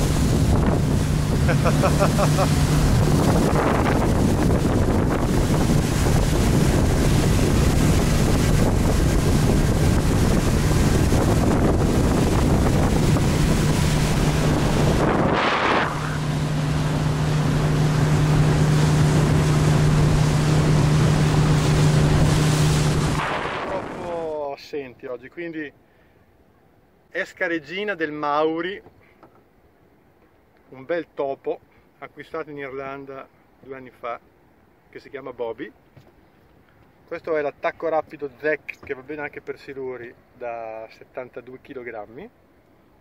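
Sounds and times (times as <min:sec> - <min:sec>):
wind noise on microphone: 0:00.0 - 0:24.2
motorboat engine humming: 0:00.0 - 0:24.4
rush of boat wake: 0:00.0 - 0:24.5.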